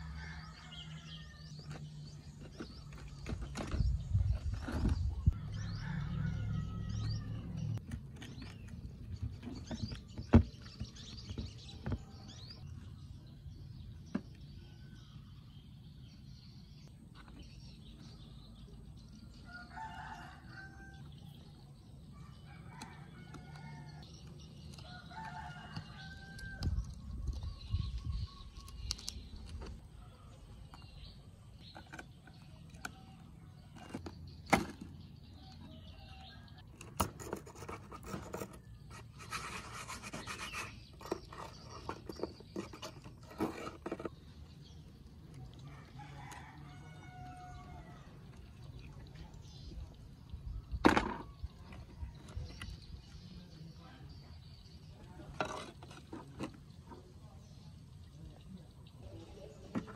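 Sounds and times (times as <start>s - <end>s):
dense scratching: 36.6s - 44.5s, 55.2s - 56.9s
metal tools scraping plastic case: 36.8s - 44.2s.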